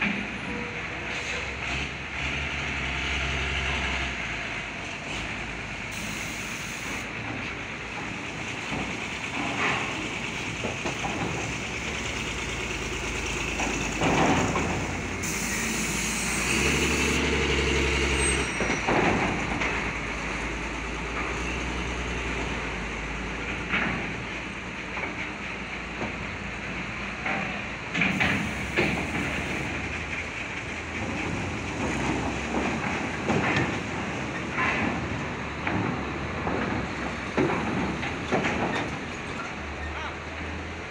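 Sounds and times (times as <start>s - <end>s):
diesel truck engines running: 0.0s - 40.9s
air brake hiss: 5.9s - 7.1s, 15.2s - 17.3s
wheels clanking on steel ramp: 7.1s - 21.7s, 23.4s - 40.0s.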